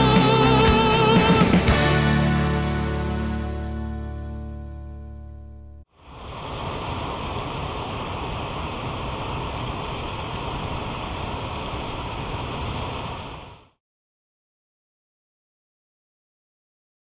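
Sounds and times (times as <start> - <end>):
flowing water rushing: 6.0 - 13.8.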